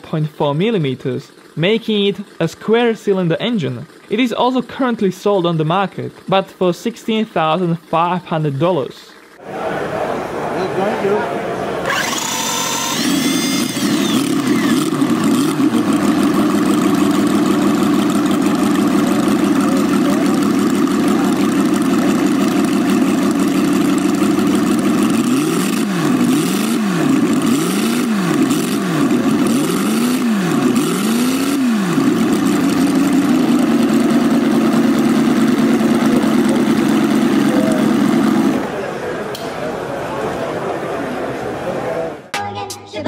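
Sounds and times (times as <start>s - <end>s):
model engine idling and revving: 0.5s - 6.3s, 11.8s - 38.8s.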